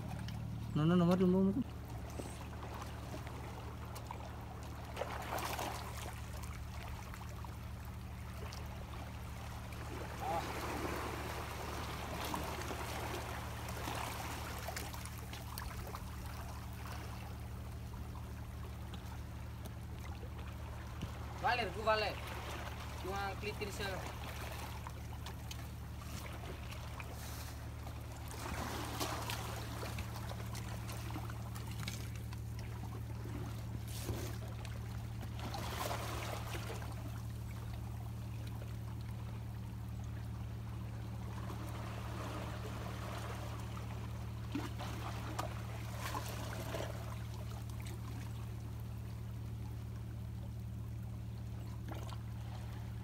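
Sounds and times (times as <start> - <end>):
steady low hum: 0.0 - 53.0
sea water washing among rocks: 9.1 - 17.2, 25.8 - 32.2.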